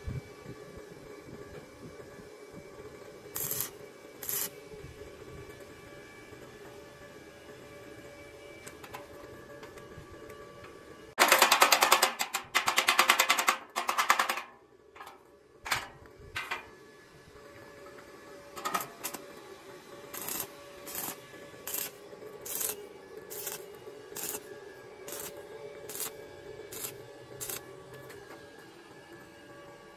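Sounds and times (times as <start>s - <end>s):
power tool rattling on steel tube: 11.2s - 14.6s.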